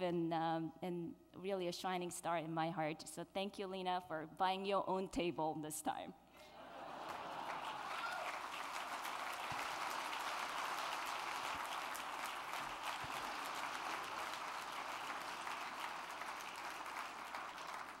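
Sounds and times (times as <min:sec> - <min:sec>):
audience applauding: 0:06.6 - 0:18.0.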